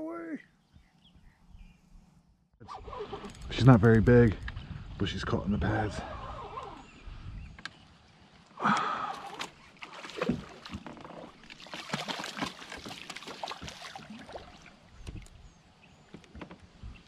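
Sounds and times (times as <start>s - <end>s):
fish splashing at water surface: 11.4s - 14.8s.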